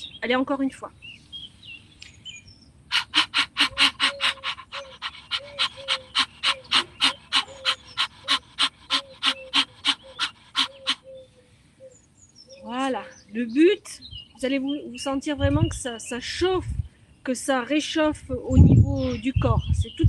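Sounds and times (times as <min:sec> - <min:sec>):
woman panting fast: 0:03.3 - 0:10.9.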